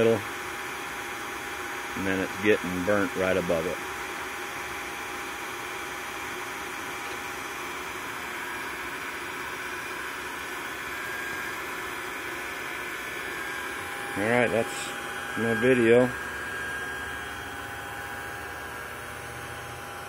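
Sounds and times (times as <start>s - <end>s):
shop vacuum rushing noise: 6.2s - 20.0s
propane torch hissing: 6.9s - 17.4s.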